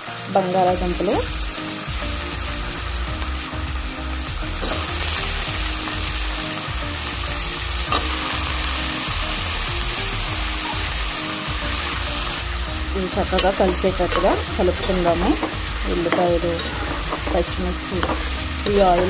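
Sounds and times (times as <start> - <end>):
food sizzling in hot oil: 0.0 - 19.0
metal ladle stirring: 13.3 - 19.0.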